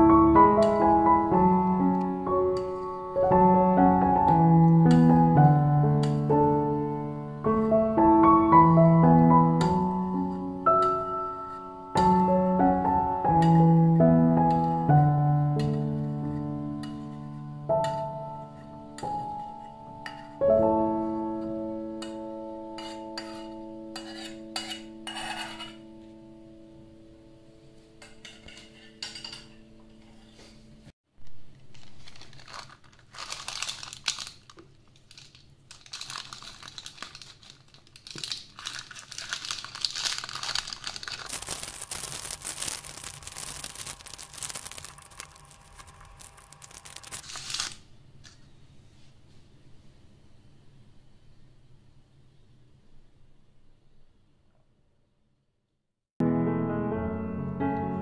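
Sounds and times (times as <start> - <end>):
piano notes: 0.0 - 30.2, 56.2 - 58.0
kitchen utensils clinking: 22.0 - 25.9, 28.0 - 30.4
crackly scraping and rustling: 31.6 - 48.4.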